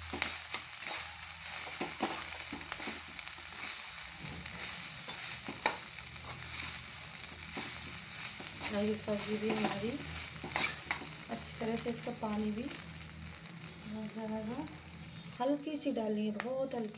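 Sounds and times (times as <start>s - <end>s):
frying sizzle: 0.0s - 16.9s
metal spatula scraping pan: 8.6s - 11.1s.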